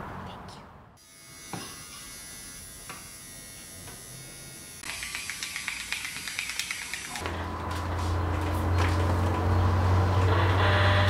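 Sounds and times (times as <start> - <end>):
small electric motor buzzing: 1.0 - 7.2
rapid clicking: 4.8 - 7.2.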